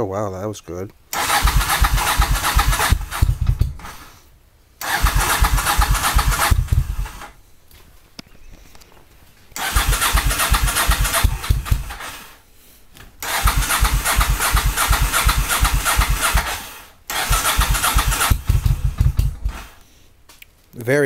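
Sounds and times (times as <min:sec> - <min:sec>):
motorcycle starter cranking engine: 0:01.1 - 0:04.1, 0:04.8 - 0:07.4, 0:09.6 - 0:12.4, 0:13.2 - 0:19.8.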